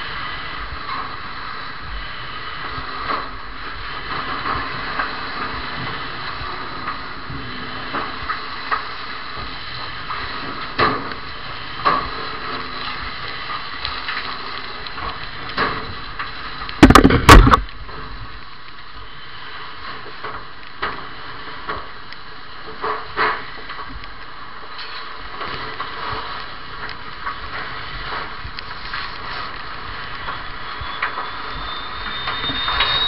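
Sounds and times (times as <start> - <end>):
building fire burning: 0.0 - 33.0
fire knocks and cracks: 2.6 - 18.9, 19.9 - 33.0
loud knocks and crashes: 16.8 - 17.7.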